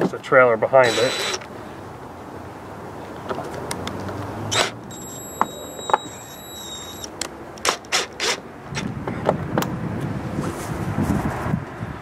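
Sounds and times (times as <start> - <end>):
drill motor whine: 0.8 - 1.4, 4.5 - 7.1.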